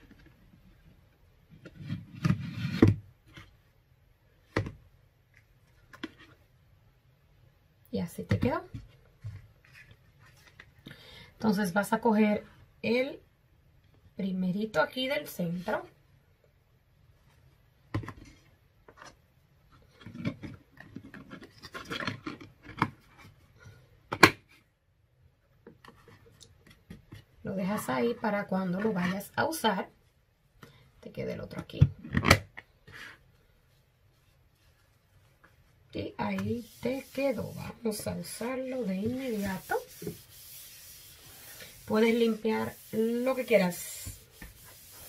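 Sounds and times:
plastic and paper towel scraping: 0:32.9 - 0:45.0.

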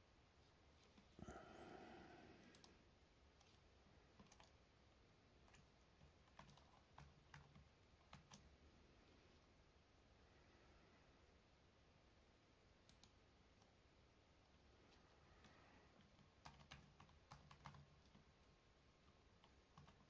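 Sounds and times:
computer keyboard clicks: 0:04.2 - 0:04.6, 0:05.4 - 0:08.5, 0:12.8 - 0:13.7, 0:15.4 - 0:18.3, 0:19.4 - 0:20.0
mouse clicks: 0:12.8 - 0:13.7.

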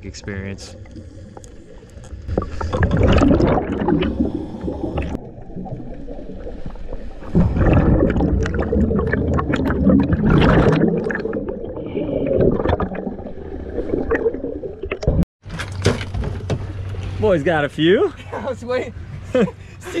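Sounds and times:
underwater bubbles gurgling: 0:00.1 - 0:15.2.

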